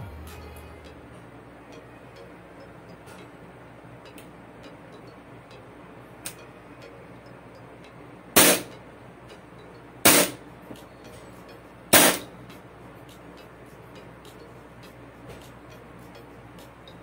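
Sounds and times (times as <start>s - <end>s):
airsoft pistol shots: 8.4s - 8.7s, 10.1s - 10.4s, 11.9s - 12.3s.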